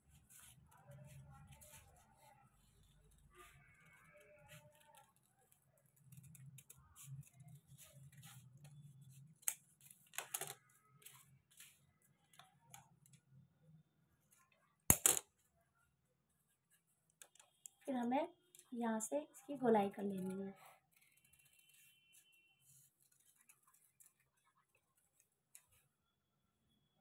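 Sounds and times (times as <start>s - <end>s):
paper rustling: 0.0s - 12.4s, 20.2s - 25.9s.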